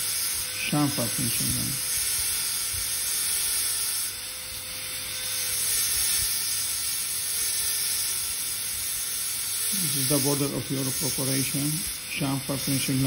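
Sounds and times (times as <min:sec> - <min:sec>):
dental drill hissing: 0:00.0 - 0:13.0.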